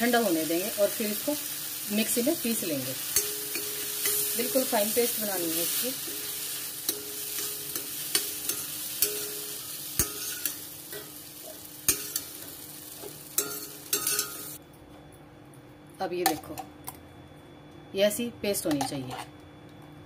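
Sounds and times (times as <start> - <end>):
hot pan sizzling: 0.0 - 14.6
spoon scraping a metal pan: 5.7 - 11.1.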